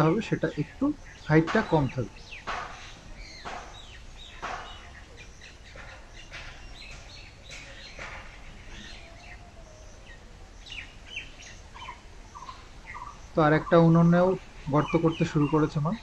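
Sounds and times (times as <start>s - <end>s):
small birds chirping: 0.0s - 16.0s
scraping knocks of digging clay: 1.3s - 4.9s.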